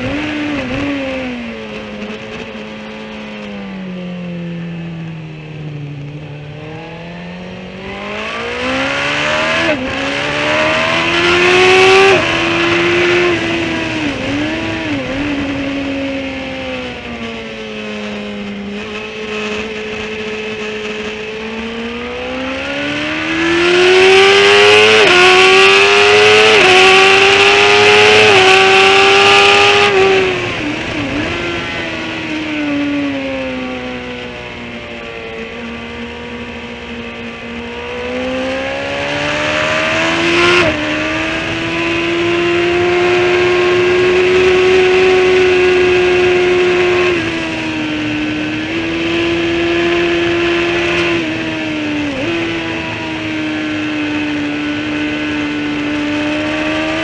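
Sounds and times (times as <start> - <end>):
motorcycle engine revving: 0.0 - 57.0
wind rush: 28.3 - 33.3.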